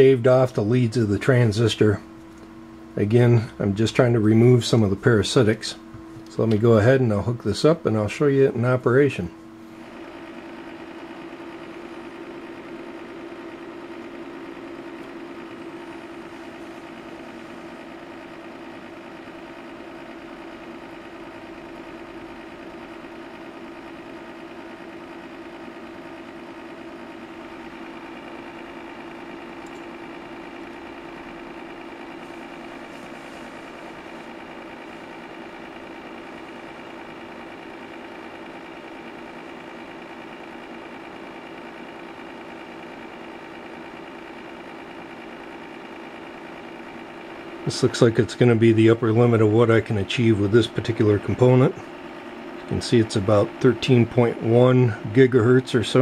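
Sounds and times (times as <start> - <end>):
faint high whine: 0.0 - 19.0
electrical and fan hum: 0.0 - 56.0.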